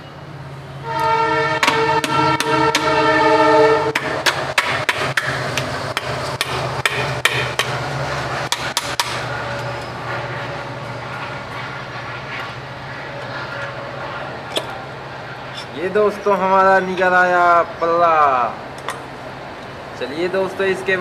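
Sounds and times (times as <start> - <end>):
steady low hum: 3.7 - 16.5
sharp metal taps: 4.0 - 7.8, 8.5 - 9.2.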